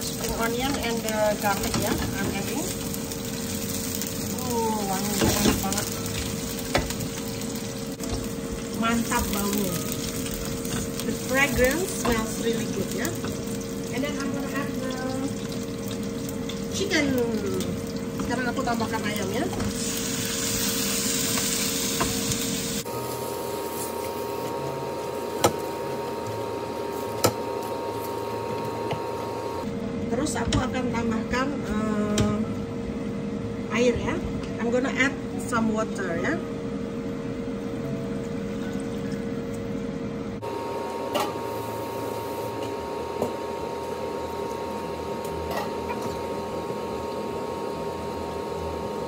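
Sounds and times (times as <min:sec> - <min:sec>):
chicken sizzling in oil: 0:00.0 - 0:28.5
steady hum: 0:00.0 - 0:49.0.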